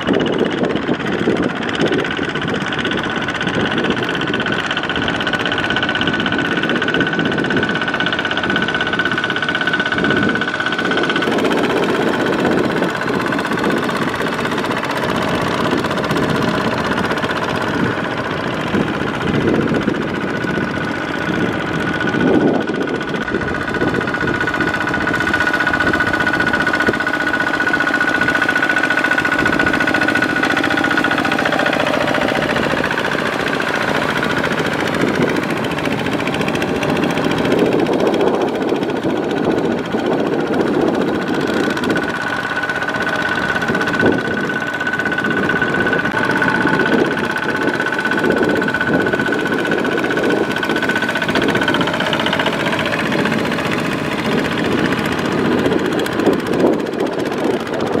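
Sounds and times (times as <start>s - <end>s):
diesel engine running under load: 0.0s - 58.0s
high whine: 11.3s - 57.6s.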